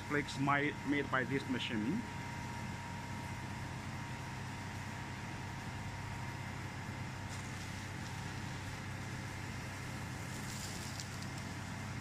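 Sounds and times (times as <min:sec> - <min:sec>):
ice machine humming: 0:03.4 - 0:12.0.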